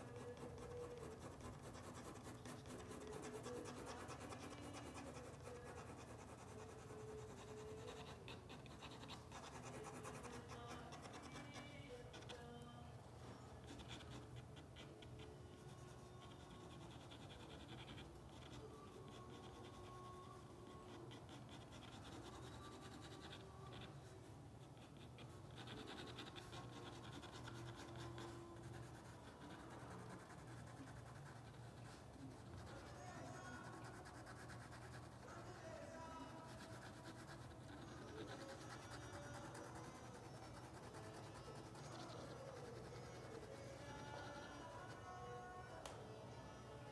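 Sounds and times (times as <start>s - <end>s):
pen scratching on paper: 0.0s - 12.4s, 13.5s - 35.2s, 36.3s - 44.9s.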